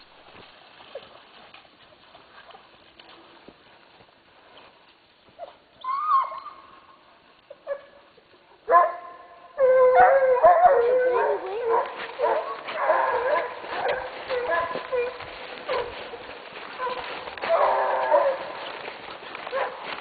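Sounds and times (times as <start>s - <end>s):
hounds baying: 7.5s - 20.0s.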